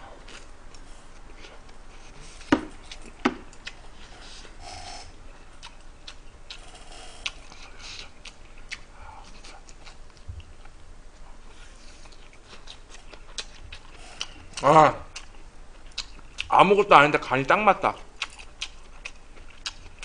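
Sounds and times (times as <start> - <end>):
eating noises: 0.2 - 10.2, 11.8 - 16.5.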